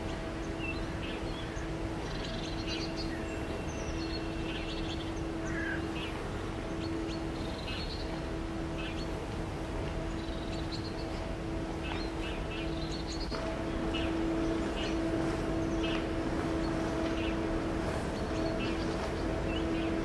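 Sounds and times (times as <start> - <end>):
steady low hum: 0.0 - 20.0
bird chirps: 11.8 - 20.0.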